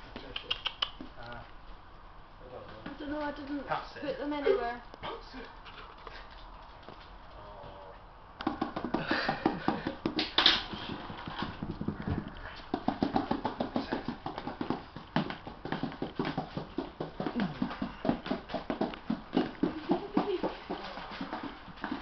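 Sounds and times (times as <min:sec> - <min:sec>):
puppy claws pattering on wooden floor: 0:05.6 - 0:07.4.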